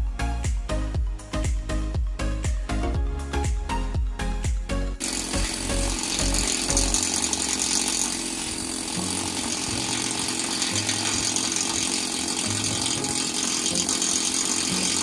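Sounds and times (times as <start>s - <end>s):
pneumatic chipping tool on steel: 5.0s - 15.0s.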